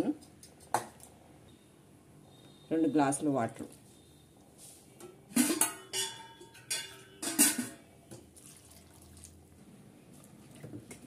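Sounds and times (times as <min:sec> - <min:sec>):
steel tumbler clinking on metal: 0:05.4 - 0:07.8
water pouring and splashing: 0:08.2 - 0:09.5, 0:10.1 - 0:11.0.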